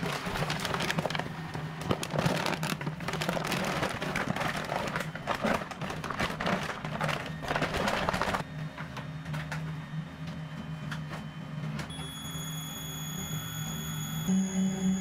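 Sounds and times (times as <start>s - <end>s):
paper sack rustling: 0.0s - 8.4s.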